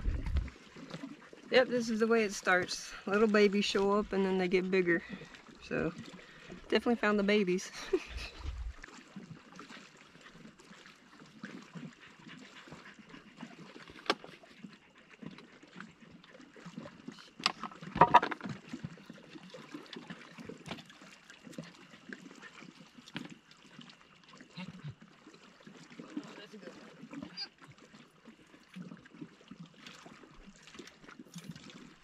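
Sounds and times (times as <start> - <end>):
small waves lapping on rocks: 0.0 - 15.0, 15.8 - 32.0
sharp clicks and knocks: 17.4 - 18.5.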